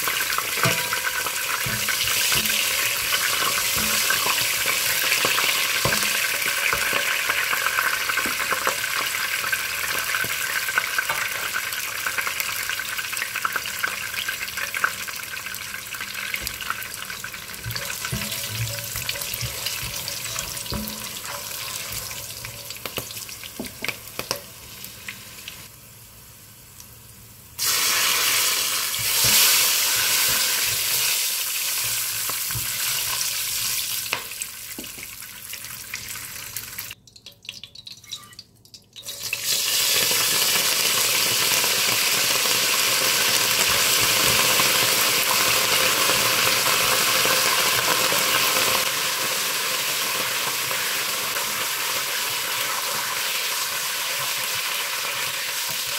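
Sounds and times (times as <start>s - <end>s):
spices sizzling in hot oil: 0.0s - 55.9s
spoon stirring in pot: 17.6s - 24.4s.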